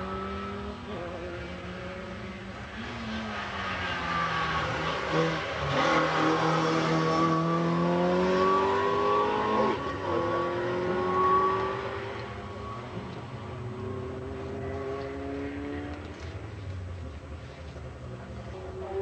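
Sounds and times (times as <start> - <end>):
race car accelerating: 0.0 - 17.2.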